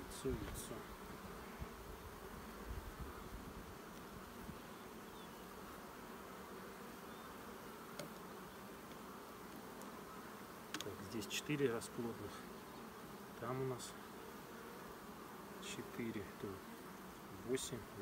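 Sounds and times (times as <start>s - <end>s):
honeybees buzzing: 0.0s - 18.0s.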